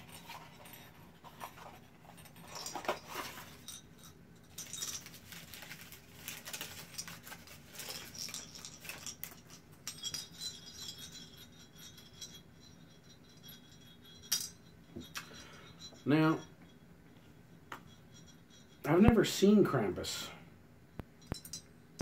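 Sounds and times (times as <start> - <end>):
small bell jingle: 2.2 - 5.8, 6.4 - 19.5
tissue paper crinkling: 4.6 - 9.4.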